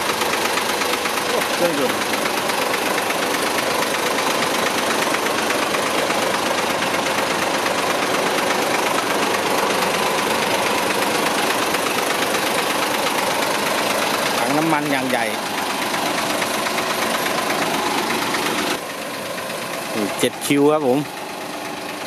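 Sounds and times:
diesel truck engine idling: 0.0 - 22.0.

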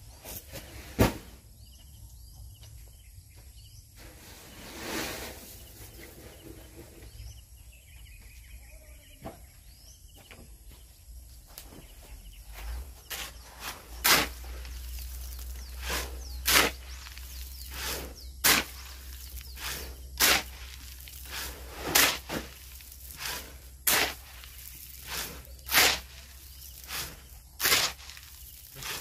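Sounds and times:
hand tool scraping cement mix: 12.6 - 29.0.

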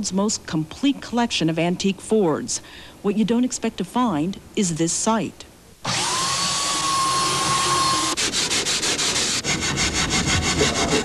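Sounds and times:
electric sander on wood: 5.8 - 11.0
hand tool rubbing over wood: 6.9 - 11.0.

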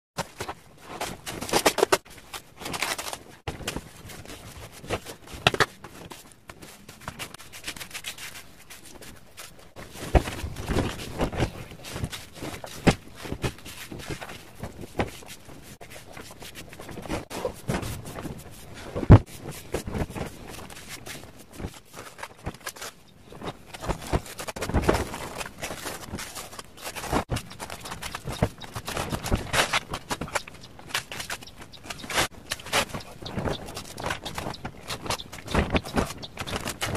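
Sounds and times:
plastic film crinkling: 1.3 - 4.4, 19.5 - 36.9.

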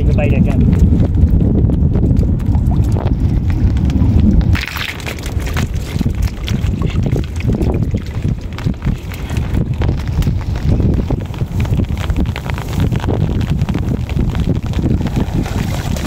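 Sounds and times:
wind buffeting microphone: 0.0 - 16.0
water sloshing and splashing: 4.2 - 9.6, 14.7 - 16.0.

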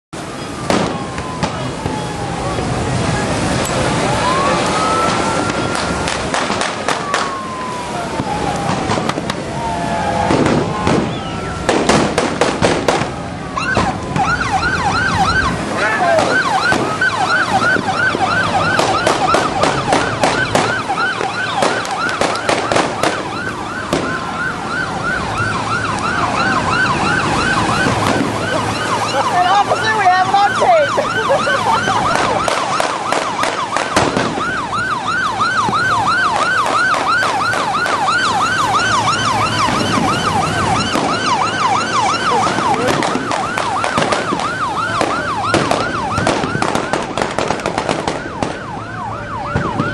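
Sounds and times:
wind and water rushing: 0.2 - 49.9
electronic siren yelping: 0.4 - 12.0, 13.3 - 49.9
sharp cracks: 4.6 - 9.5, 10.2 - 14.4, 16.1 - 24.4, 31.8 - 34.8, 39.6 - 48.8.

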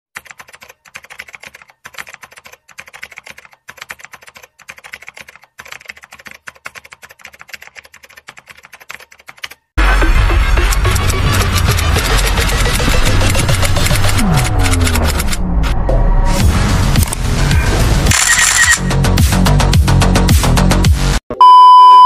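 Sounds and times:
keyboard keys clicking: 0.2 - 9.7
loud music: 9.8 - 21.2.

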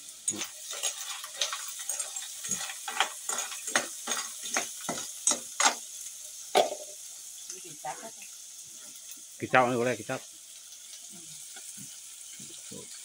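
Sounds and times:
steady sizzle: 0.0 - 13.0
spoon clattering snail shells in pan: 0.2 - 7.1.

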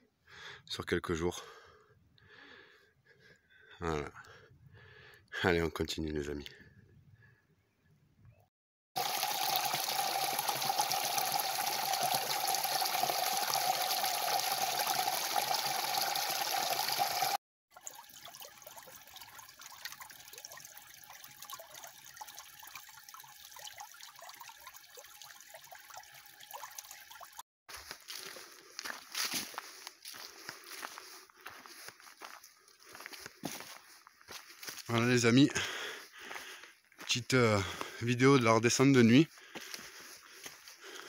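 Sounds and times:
water trickling into pool: 9.0 - 28.9.

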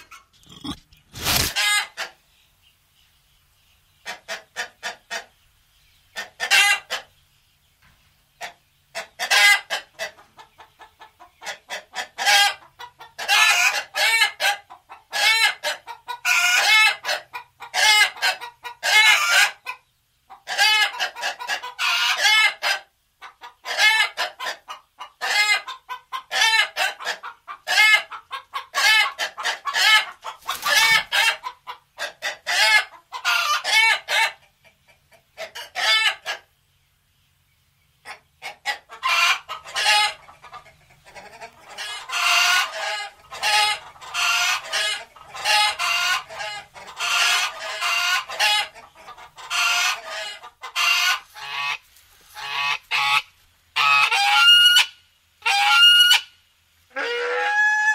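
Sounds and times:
chickens clucking: 0.0 - 57.9
rooster crowing: 57.0 - 57.9.

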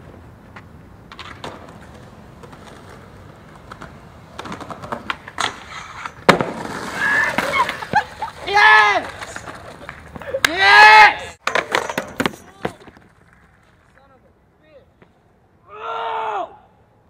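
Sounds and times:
skateboard rolling on pavement: 0.0 - 10.5, 11.2 - 14.6
skateboard scraping metal handrail: 1.1 - 8.4
skateboard landing smack: 4.4 - 8.0, 11.4 - 13.1.

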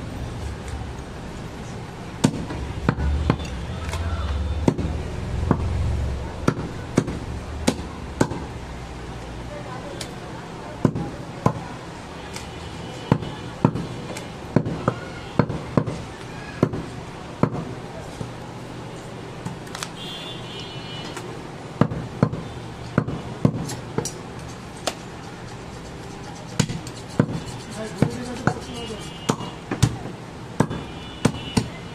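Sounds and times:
knife chopping meat on wood block: 4.6 - 5.7, 26.6 - 30.0.

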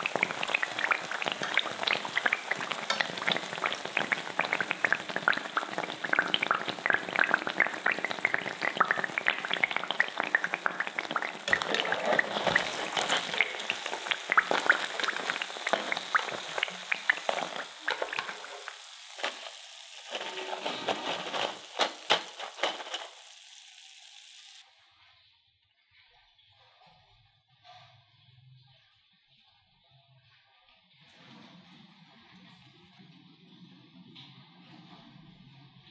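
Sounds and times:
food deep-frying in oil: 0.0 - 24.7.

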